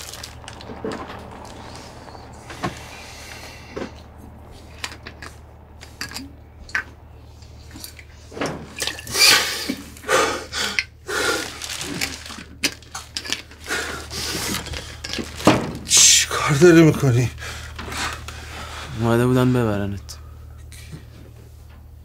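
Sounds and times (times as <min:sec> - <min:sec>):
rustling and scraping: 0:00.0 - 0:10.0, 0:11.3 - 0:15.9
low steady hum: 0:00.0 - 0:22.0
objects clicking and knocking: 0:11.7 - 0:13.7.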